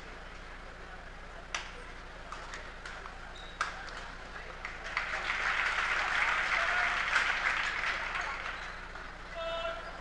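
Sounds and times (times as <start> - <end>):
spectators clapping: 3.6 - 9.2.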